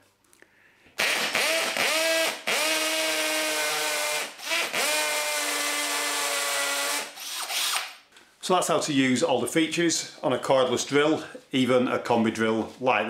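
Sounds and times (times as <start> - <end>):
hammer drill drilling into masonry: 1.0 - 8.0.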